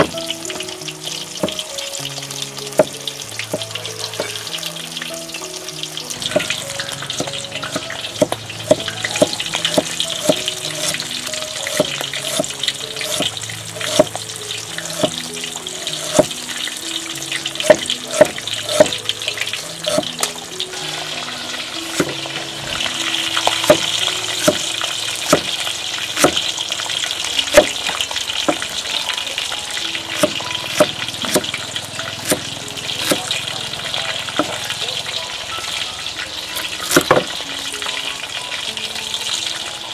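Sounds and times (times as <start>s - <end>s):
soft background music: 0.0s - 39.9s
cleaver knocking on wooden board: 1.4s - 1.6s, 7.2s - 11.0s, 11.7s - 14.2s, 14.9s - 15.1s, 16.0s - 16.3s, 17.6s - 19.0s, 19.8s - 20.0s, 22.0s - 22.2s, 23.6s - 24.6s, 25.3s - 25.5s, 26.2s - 26.4s, 30.2s - 31.5s, 32.2s - 32.4s, 33.0s - 33.2s.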